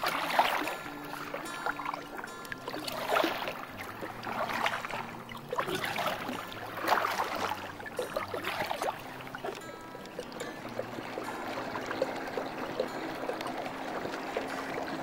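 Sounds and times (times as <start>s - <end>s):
water lapping against kayak hull: 0.0s - 15.0s.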